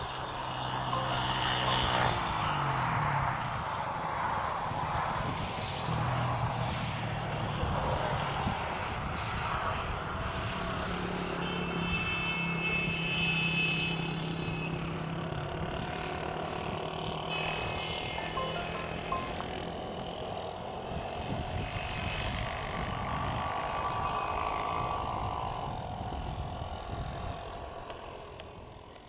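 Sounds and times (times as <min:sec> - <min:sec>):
high whine: 0:00.0 - 0:09.3, 0:10.0 - 0:24.6
aircraft engine droning: 0:00.0 - 0:29.0
rough continuous rumble: 0:00.0 - 0:29.0.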